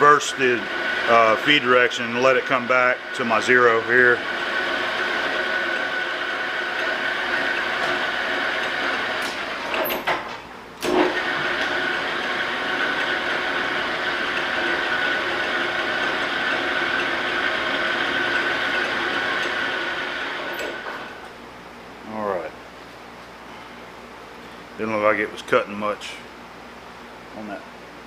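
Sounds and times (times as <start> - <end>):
metal lathe whining: 0.0 - 10.2, 10.8 - 21.3.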